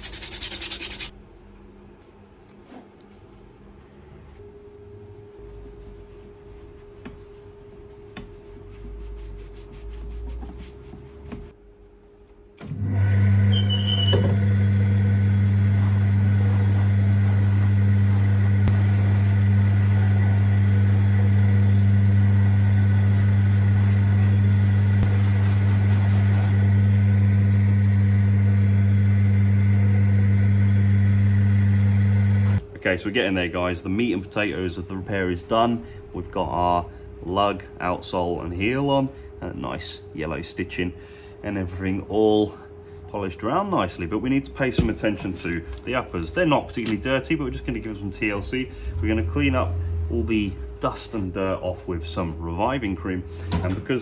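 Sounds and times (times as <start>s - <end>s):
sandpaper rubbing: 0.0s - 1.1s, 5.8s - 11.5s
buffing machine humming: 12.7s - 32.6s.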